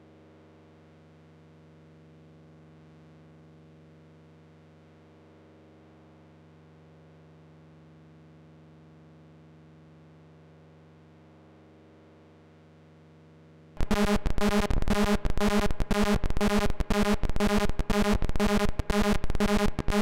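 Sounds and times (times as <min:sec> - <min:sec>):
synthesizer low hum: 0:13.8 - 0:20.0.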